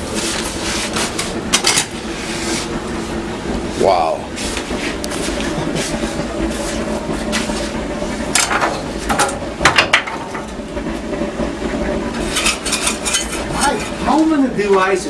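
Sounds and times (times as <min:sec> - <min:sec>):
steady room hum: 0:00.0 - 0:15.0
sharp knocks and clicks: 0:08.3 - 0:10.6.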